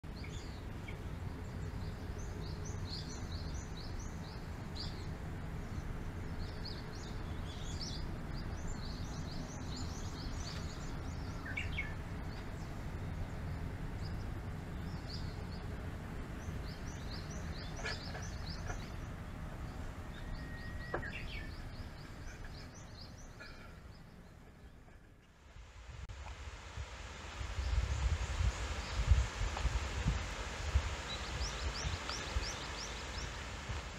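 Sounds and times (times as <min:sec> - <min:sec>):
forest birds chirping: 0:00.0 - 0:26.0, 0:27.4 - 0:33.9
steady low rumble: 0:24.0 - 0:33.9.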